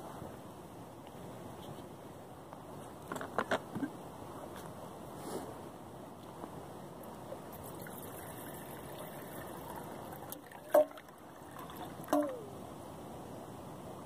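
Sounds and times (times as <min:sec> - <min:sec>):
water pouring into metal pot: 0:07.5 - 0:12.5.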